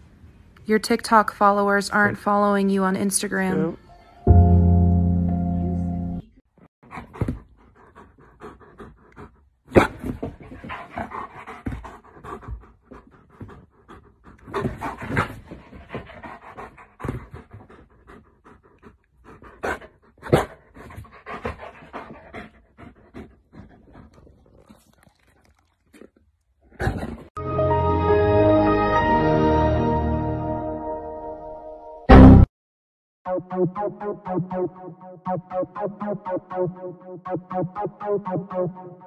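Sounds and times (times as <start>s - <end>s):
dog panting: 6.8s - 25.3s.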